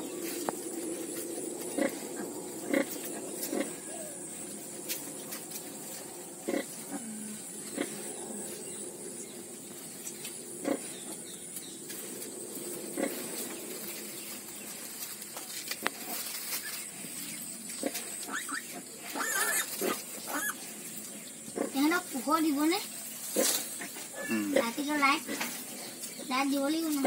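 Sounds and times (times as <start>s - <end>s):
piglets grunting and squeaking: 1.7s - 4.5s, 6.4s - 8.6s, 10.6s - 11.2s, 16.0s - 20.8s, 23.2s - 25.6s
piglet squealing: 18.3s - 19.7s, 20.3s - 20.6s.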